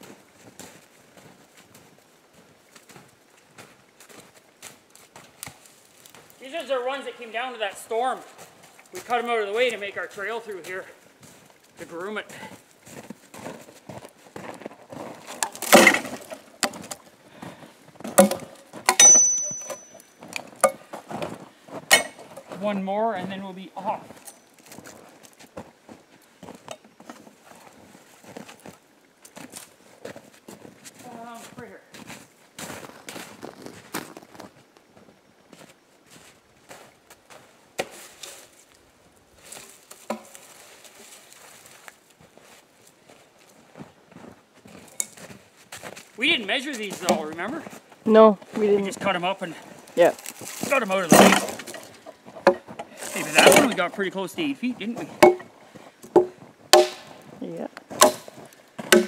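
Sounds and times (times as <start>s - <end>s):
footsteps crunching in snow: 0.0s - 18.8s, 20.2s - 53.4s
log thudding onto logs: 15.3s - 17.0s, 18.0s - 19.9s, 50.3s - 53.8s, 55.0s - 57.2s, 57.8s - 59.0s
logs knocking: 15.3s - 17.0s, 18.0s - 19.9s, 51.1s - 53.8s, 55.0s - 57.2s, 57.9s - 59.0s.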